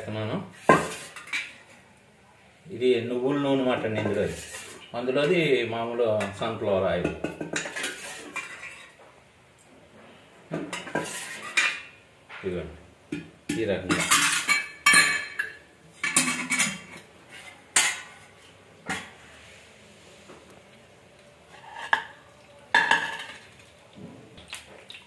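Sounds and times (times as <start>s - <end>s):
utensils and dishes clattering: 0.6s - 1.8s, 7.0s - 9.0s, 10.5s - 12.5s, 13.2s - 19.2s, 21.5s - 23.8s.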